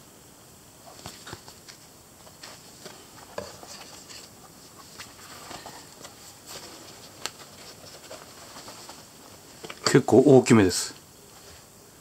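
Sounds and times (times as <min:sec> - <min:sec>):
leather gloves rustling: 0:00.9 - 0:09.8.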